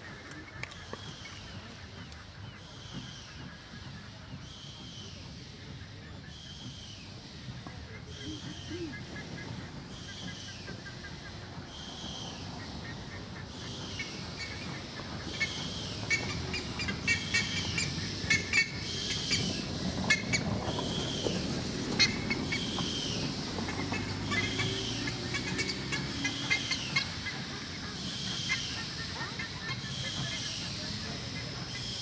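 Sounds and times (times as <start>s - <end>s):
steam locomotive rumbling: 0.0s - 32.0s
steam hissing: 13.5s - 32.0s.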